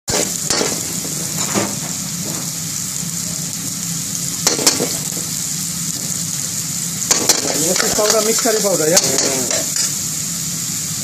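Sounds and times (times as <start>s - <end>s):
onions sizzling in oil: 0.1s - 11.0s
metal utensil scraping a wok: 7.1s - 10.0s.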